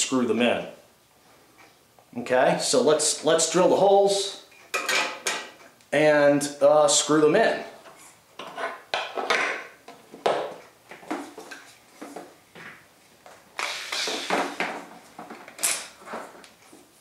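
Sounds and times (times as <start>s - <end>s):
metal clamps knocking and clinking: 4.7s - 5.6s.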